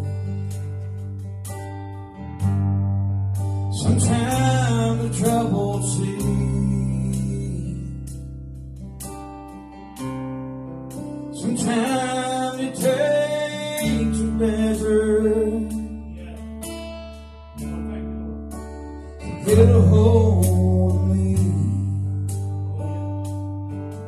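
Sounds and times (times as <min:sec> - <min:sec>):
acoustic guitar strumming: 0:00.0 - 0:24.0
low keyboard notes: 0:00.0 - 0:24.0
man singing into microphone: 0:03.7 - 0:08.1, 0:11.4 - 0:16.5, 0:19.3 - 0:23.0.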